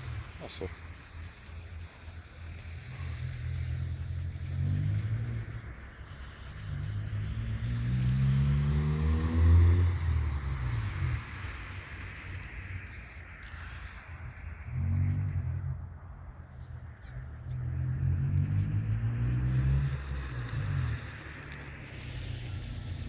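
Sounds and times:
car engine accelerating: 0:00.0 - 0:23.0.

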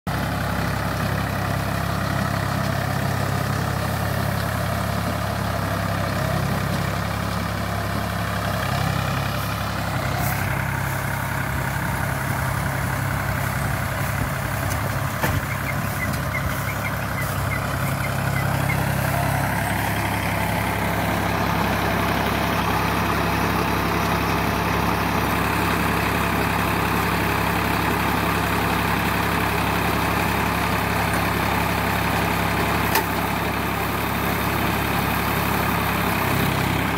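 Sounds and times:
tractor diesel engine running: 0:00.1 - 0:36.9
baler machinery clattering: 0:09.3 - 0:21.4.

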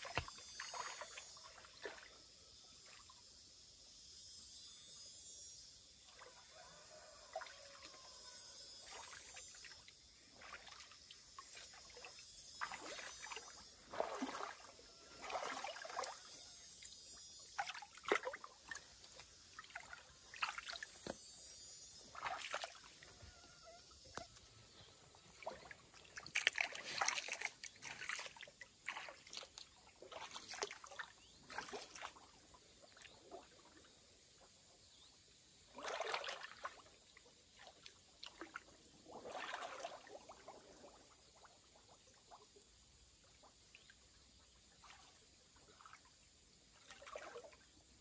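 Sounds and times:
water splashes: 0:00.0 - 0:02.2, 0:08.8 - 0:21.2, 0:22.1 - 0:23.2, 0:25.3 - 0:33.9, 0:35.7 - 0:47.7
water trickling and sloshing: 0:00.0 - 0:03.4, 0:06.0 - 0:48.0.

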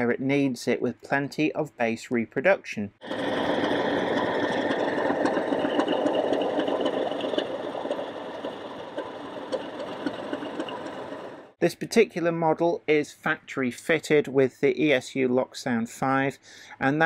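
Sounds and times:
model train running noise: 0:03.0 - 0:11.6.

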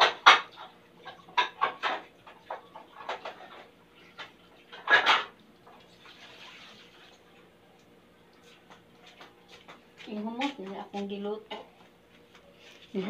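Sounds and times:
dishes and utensils clattering: 0:00.0 - 0:06.0.

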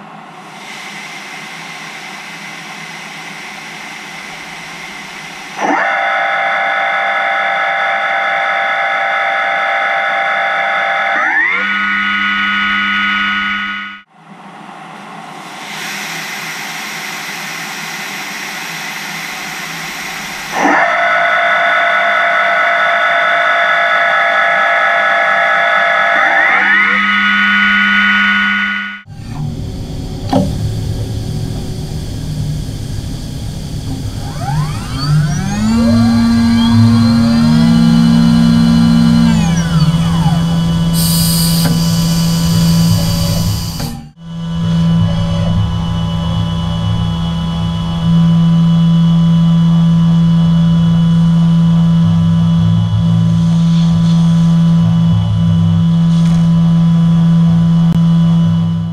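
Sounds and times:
steady tones: 0:00.0 - 0:06.2, 0:14.8 - 0:55.9
machine spindle motor hum and whine: 0:00.0 - 0:58.9
high-pressure coolant hissing: 0:40.3 - 0:43.9.

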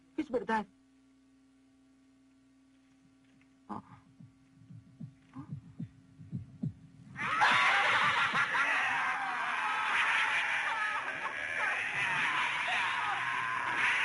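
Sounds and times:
heartbeat thumps: 0:03.8 - 0:08.6.

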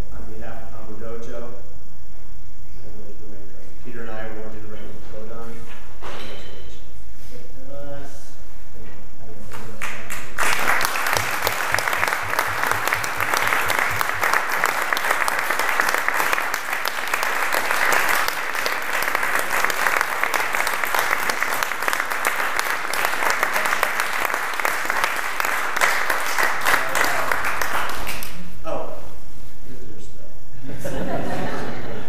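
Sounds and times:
people applauding: 0:09.5 - 0:28.5.

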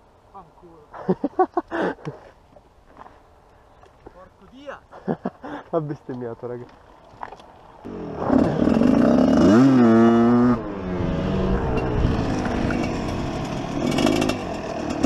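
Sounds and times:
dirt bike engine revving: 0:07.8 - 0:15.0.

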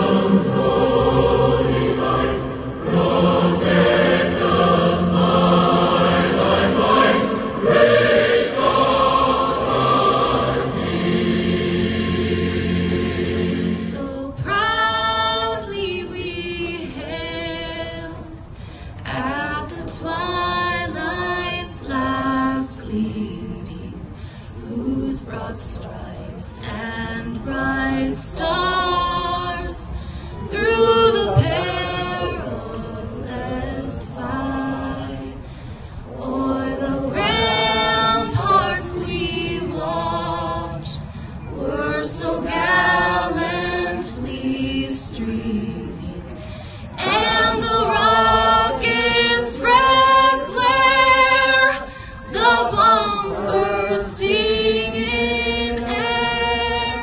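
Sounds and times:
woman singing over loudspeaker: 0:19.1 - 0:35.4, 0:36.2 - 0:57.0.

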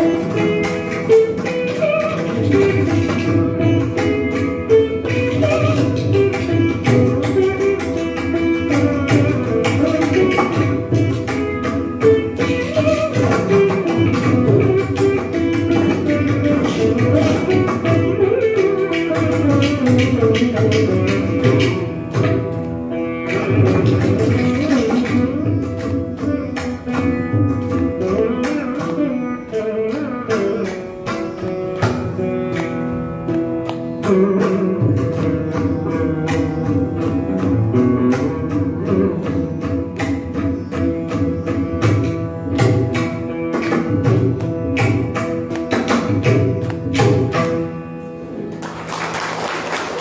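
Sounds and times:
ghatam clay pot strokes: 0:00.0 - 0:48.0
mridangam drum strokes: 0:00.0 - 0:50.0
veena playing: 0:00.0 - 0:50.0.

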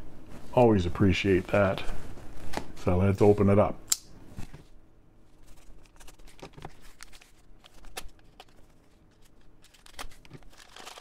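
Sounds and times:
paper rustling and crinkling: 0:04.4 - 0:11.0.

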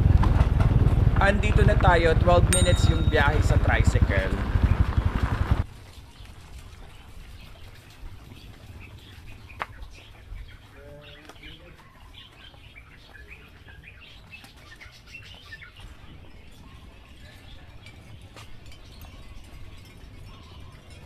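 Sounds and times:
low rumble: 0:00.0 - 0:05.6
small birds chirping: 0:05.8 - 0:21.0.

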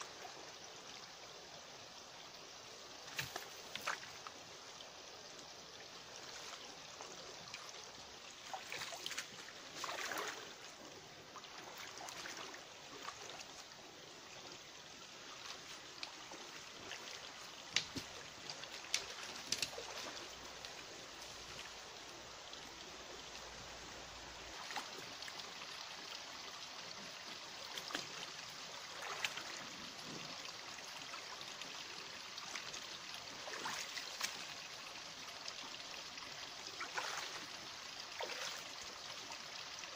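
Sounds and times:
stream running over rocks: 0:00.0 - 0:39.9
boots wading through water: 0:08.3 - 0:10.8, 0:11.4 - 0:13.6, 0:15.3 - 0:20.3, 0:27.7 - 0:29.6, 0:33.4 - 0:34.5, 0:36.8 - 0:37.5, 0:38.1 - 0:38.7.

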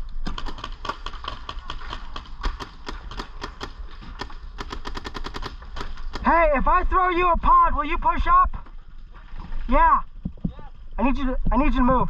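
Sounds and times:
paintball markers firing: 0:00.0 - 0:06.3.

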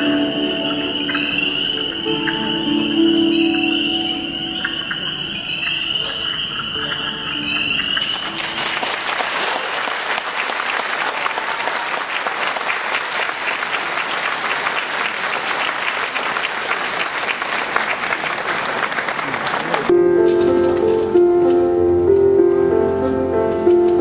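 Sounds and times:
dance music: 0:00.0 - 0:04.6
audience applause: 0:06.8 - 0:19.9.

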